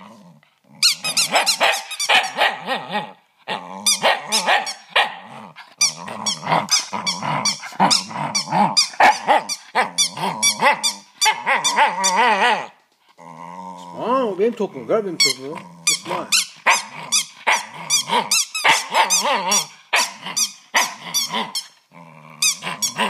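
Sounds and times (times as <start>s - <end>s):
dog growling: 0.0s - 23.0s
rubber toy squeaking: 0.8s - 2.4s, 3.9s - 5.0s, 5.8s - 12.7s, 15.1s - 21.8s, 22.4s - 23.0s.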